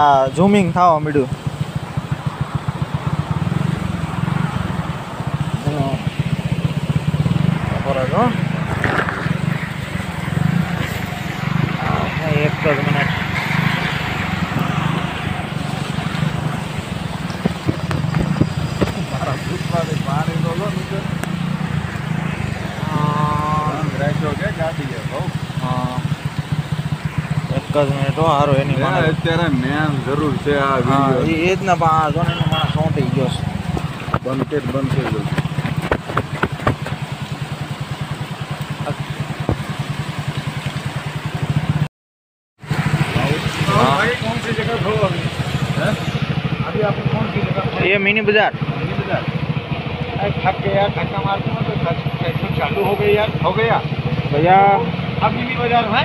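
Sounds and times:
heavy rain pouring: 0.0 - 41.9, 42.6 - 46.6
low engine hum: 0.6 - 41.9
sharp taps: 15.9 - 19.1, 33.6 - 37.1.

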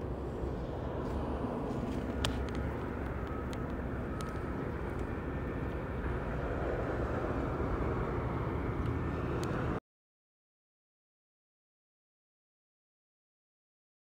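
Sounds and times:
outdoor background rumble: 0.0 - 9.8
faint clicks: 8.8 - 9.6.

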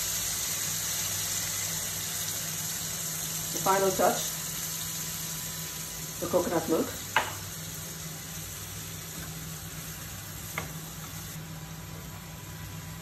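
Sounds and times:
curry simmering and sizzling in pan: 0.0 - 6.2.

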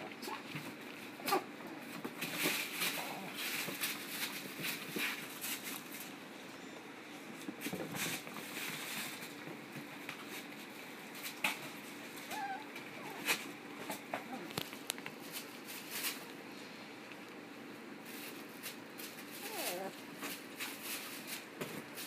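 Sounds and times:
paws clicking on hardwood floor: 0.2 - 6.2.

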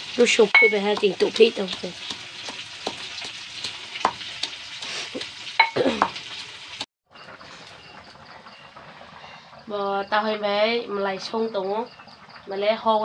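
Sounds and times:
stone pestle grinding garlic: 0.6 - 6.3.

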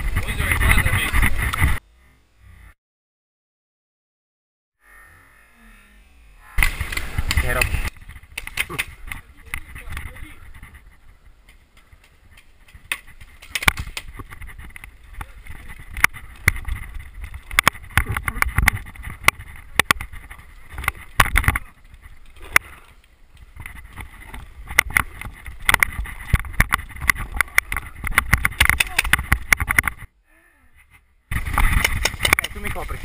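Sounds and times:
sharp clicks and knocks: 6.6 - 10.8, 11.4 - 21.7, 23.4 - 30.1, 31.3 - 32.8.

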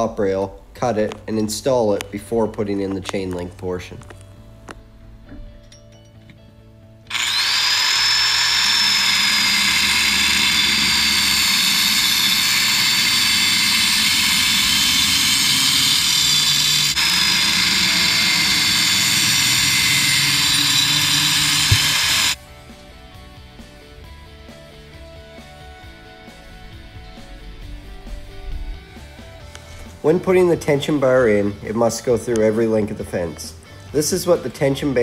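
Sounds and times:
angle grinder cutting metal: 7.1 - 22.4.

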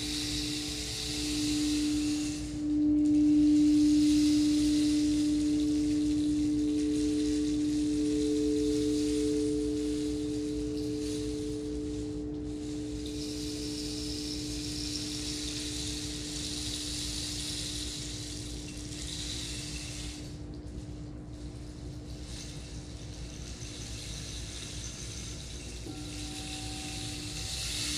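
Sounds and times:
ringing drone tones: 0.0 - 20.5, 21.2 - 27.9
soft hiss: 0.0 - 27.9.

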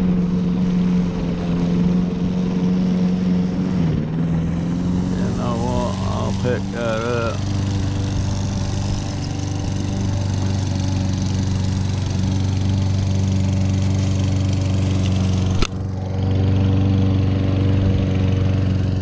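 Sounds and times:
lawn mower engine running: 0.0 - 19.0
sharp click: 15.6 - 15.8.

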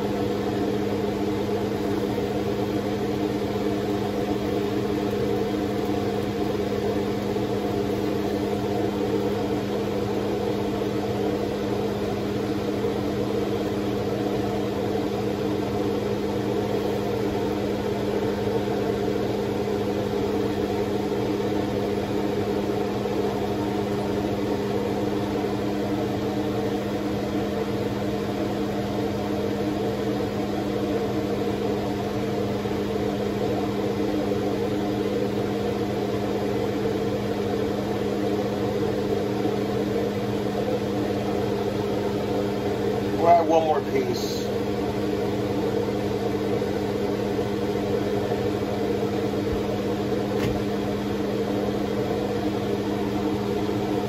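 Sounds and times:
appliance motor humming: 0.0 - 25.5.

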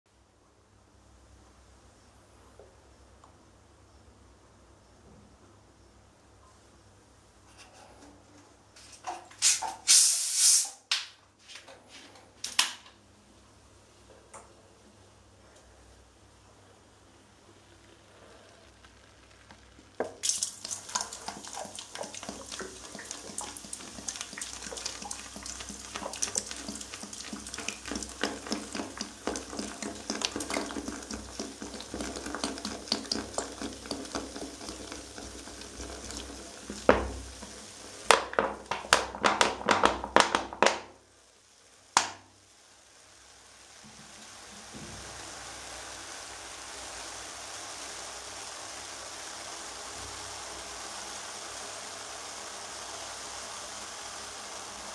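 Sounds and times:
soft steady hiss: 0.0 - 54.9
soda pouring into water with fizz: 17.0 - 40.7, 41.5 - 54.9.

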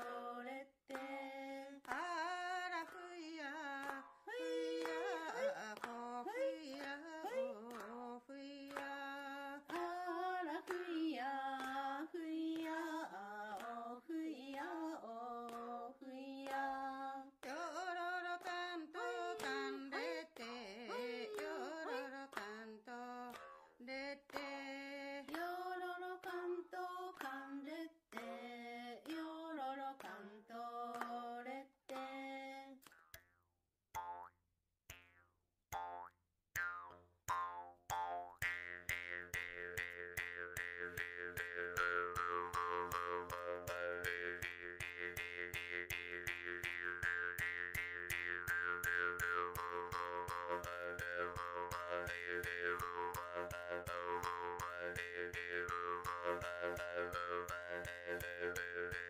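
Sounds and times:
unaccompanied ritual chant singing: 0.0 - 17.2, 18.4 - 22.8.

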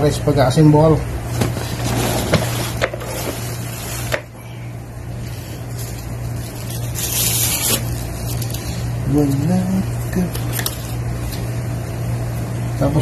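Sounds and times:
steady low hum: 0.0 - 13.0
plastic wrapping rustle: 1.3 - 4.3, 5.2 - 9.5.

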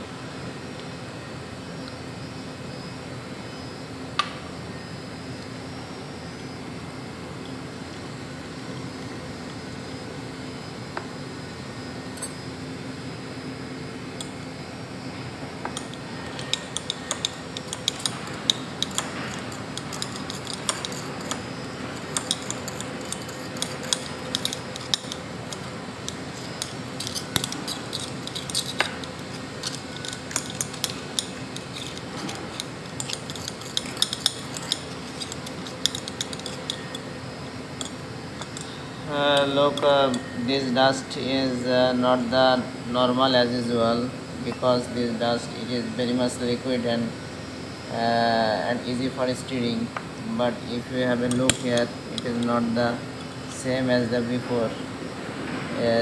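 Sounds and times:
steady low hum: 0.0 - 56.0
glass rod clinking in flask: 12.2 - 12.4.

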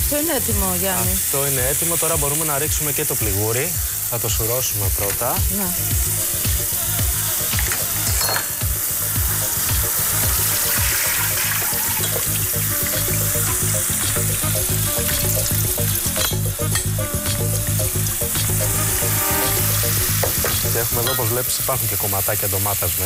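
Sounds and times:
food sizzling in a frying pan: 0.0 - 23.0.

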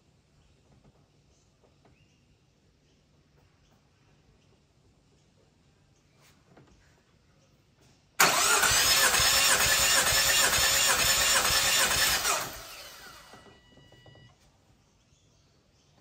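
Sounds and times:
engine cranking on starter: 8.2 - 14.3.

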